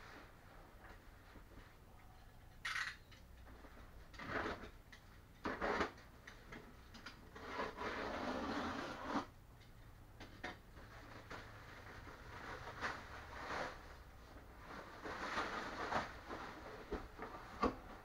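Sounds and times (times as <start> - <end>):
plastic wrapping rustling and crinkling: 10.8 - 18.0.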